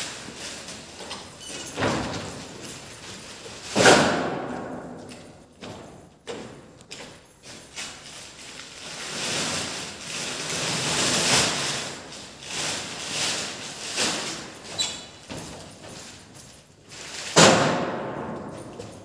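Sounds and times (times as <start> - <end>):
plastic sacks rustling and scraping: 0.0 - 4.6, 7.4 - 19.0.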